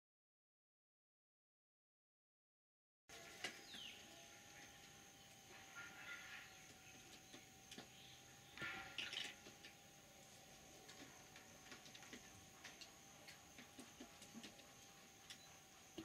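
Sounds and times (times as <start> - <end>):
faint steady high tone: 14.6 - 16.0.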